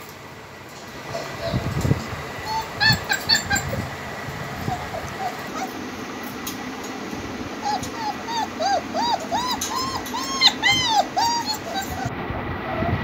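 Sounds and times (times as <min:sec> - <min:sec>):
puppies whimpering: 0:01.0 - 0:01.8, 0:02.4 - 0:06.0, 0:07.6 - 0:12.1.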